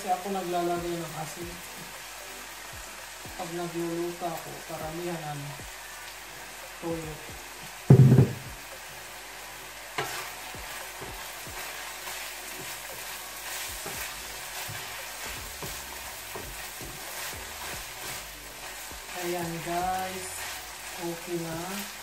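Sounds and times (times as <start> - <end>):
meat sizzling in frying pan: 0.0 - 22.0
loud thump: 7.9 - 8.5
sharp knock: 7.9 - 8.5
spatula scraping pan: 10.0 - 21.0.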